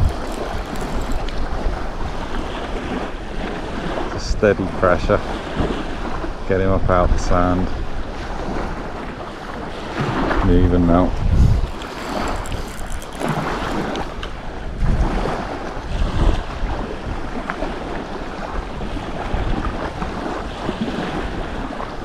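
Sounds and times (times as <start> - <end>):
wind buffeting microphone: 0.0 - 4.2, 5.0 - 22.0
sea waves washing: 0.0 - 6.4, 7.8 - 22.0.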